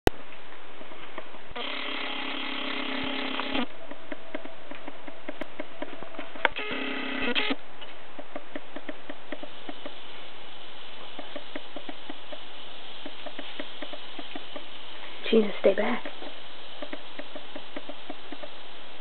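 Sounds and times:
steady hiss: 0.2 - 19.0
small motor whirring: 1.6 - 3.7, 6.5 - 7.6.

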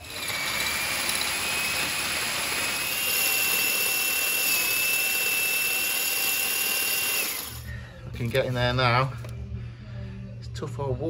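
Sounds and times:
drill whining: 0.0 - 7.7
drill bit grinding masonry: 0.0 - 8.4.

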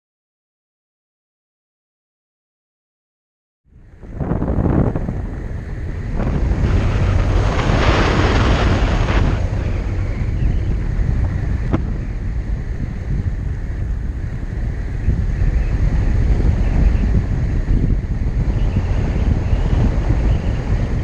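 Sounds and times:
wind buffeting microphone: 3.7 - 21.0.

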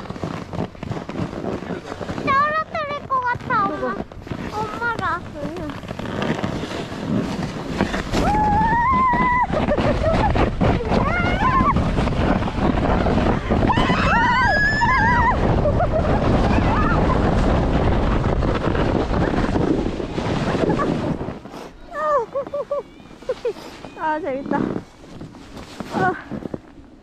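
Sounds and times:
sled scraping over snow: 0.0 - 27.0
wind buffeting microphone: 0.0 - 27.0
riders shrieking: 13.5 - 17.3.

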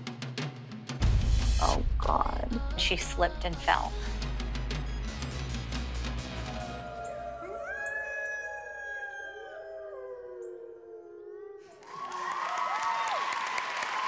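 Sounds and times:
wolves howling: 6.7 - 11.7
audience applause and cheering: 11.7 - 14.0.

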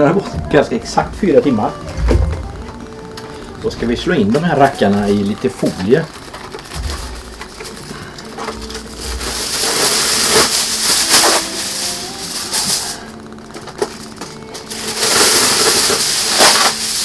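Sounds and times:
aluminium foil crinkling: 2.4 - 17.0.

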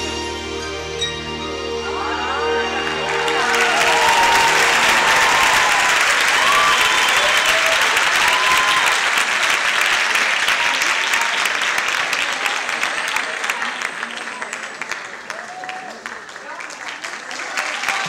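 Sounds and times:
music: 0.0 - 5.9
people shouting: 1.8 - 8.9
audience applauding: 1.9 - 18.0.

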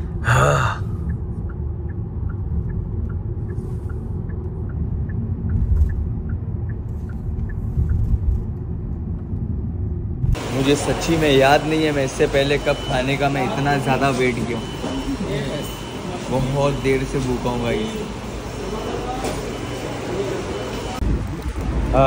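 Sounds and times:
road and engine rumble inside car: 0.0 - 10.4
faint regular ticking: 0.9 - 8.0.

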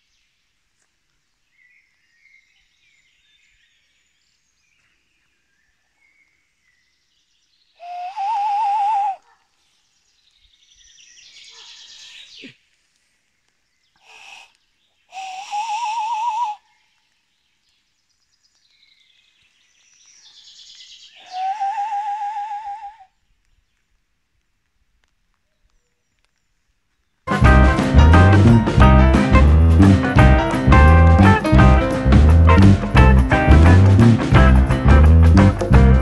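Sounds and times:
animal call wavering pitch: 7.8 - 9.2, 21.2 - 23.1.

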